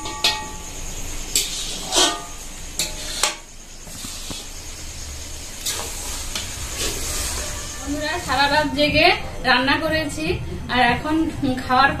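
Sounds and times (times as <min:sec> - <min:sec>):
metal cookware clanking: 0:00.0 - 0:03.5
vegetables sizzling: 0:00.0 - 0:09.3
metal spatula stirring vegetables: 0:01.3 - 0:04.6, 0:05.6 - 0:08.5.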